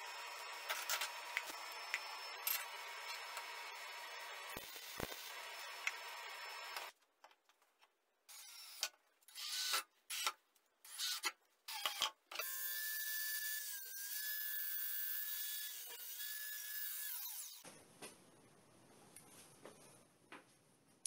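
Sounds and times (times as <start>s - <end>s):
angle grinder cutting copper tubes: 0.0s - 6.9s.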